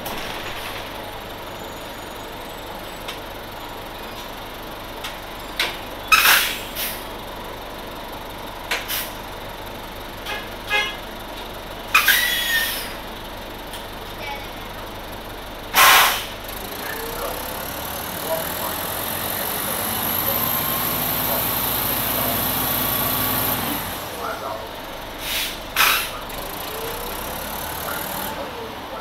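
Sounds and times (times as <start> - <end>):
bus diesel engine running: 0.0 - 29.0
short sharp hisses: 8.9 - 9.2, 15.8 - 16.4, 25.2 - 26.2
squeaks: 12.0 - 12.9.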